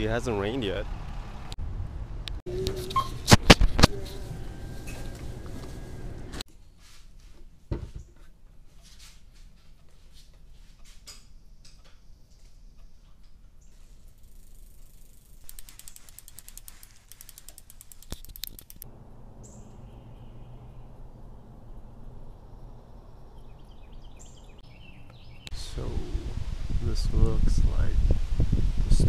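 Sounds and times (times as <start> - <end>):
outdoor background noise: 0.0 - 29.0
bicycle parts clicking and knocking: 13.0 - 18.9
freehub clicking as wheel spins: 13.9 - 18.9.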